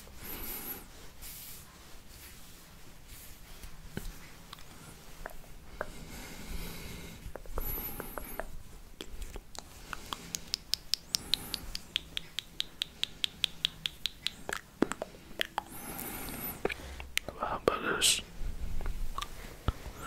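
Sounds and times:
crisp ticks: 8.4s - 15.7s.

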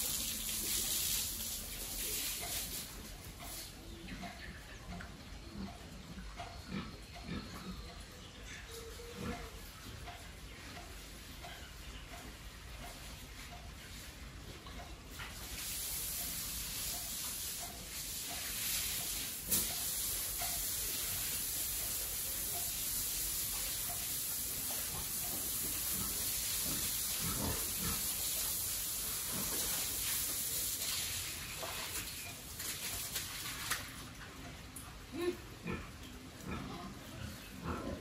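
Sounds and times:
pig grunting while eating: 5.0s - 9.7s, 25.9s - 28.4s, 29.2s - 29.9s, 35.0s - 38.0s
steady high hiss: 15.4s - 31.6s.

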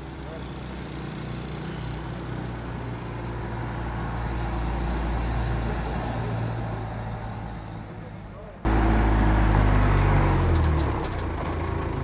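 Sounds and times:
truck engine driving by: 8.6s - 12.0s.

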